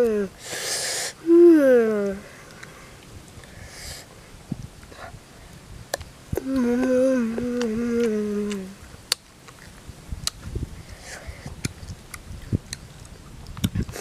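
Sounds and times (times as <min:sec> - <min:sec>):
boy humming: 0:00.0 - 0:02.5, 0:06.4 - 0:08.8
chewing and lip-smacking: 0:05.9 - 0:14.0.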